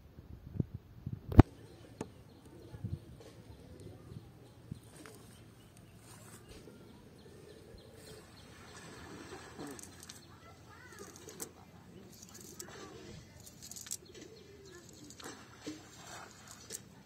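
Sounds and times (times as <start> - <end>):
birds calling: 1.4 - 17.0
net rustling and clicking: 9.5 - 16.9.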